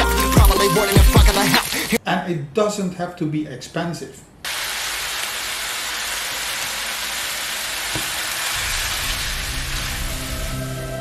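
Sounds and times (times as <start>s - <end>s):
vegetables sizzling in a frying pan: 0.0s - 2.0s, 4.5s - 11.0s.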